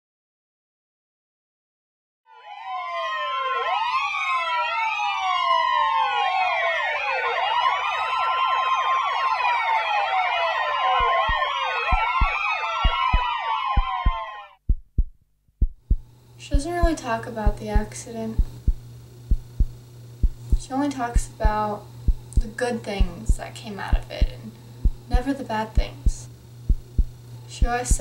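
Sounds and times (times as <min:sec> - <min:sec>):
emergency sirens wailing: 0:02.3 - 0:14.6
low heartbeat-like thuds: 0:11.0 - 0:28.0.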